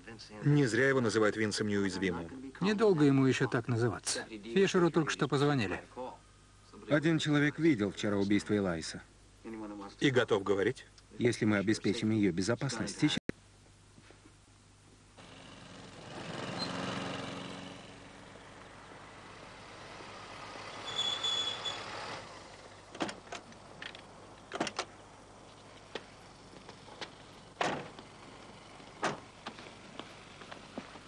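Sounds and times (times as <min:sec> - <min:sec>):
vehicle passing: 0:15.2 - 0:22.9
thin high squeal: 0:16.5 - 0:16.9, 0:20.8 - 0:22.2.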